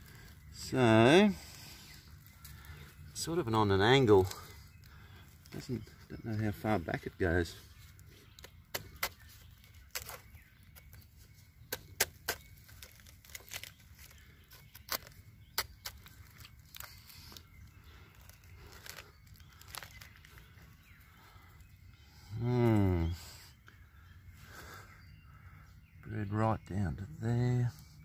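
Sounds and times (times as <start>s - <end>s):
knife crackling through rotten wood: 7.7s - 21.7s.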